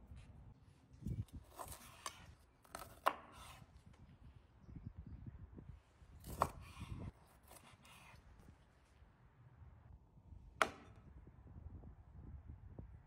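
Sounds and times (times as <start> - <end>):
knife cutting raw chicken: 1.3 - 3.8, 6.2 - 8.4.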